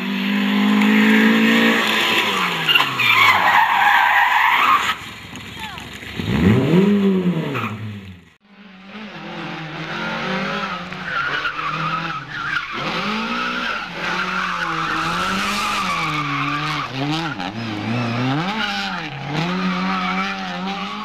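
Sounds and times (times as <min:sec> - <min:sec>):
rally car engines revving: 0:00.0 - 0:21.0
tyres squealing: 0:01.9 - 0:05.0, 0:11.0 - 0:20.3.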